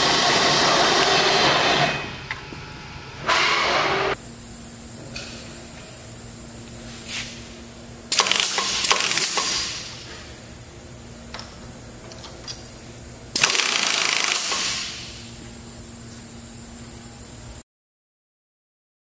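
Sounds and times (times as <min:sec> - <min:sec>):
pneumatic air-impact hammering: 0:00.0 - 0:02.1, 0:03.2 - 0:04.2, 0:08.1 - 0:10.6, 0:13.3 - 0:15.3.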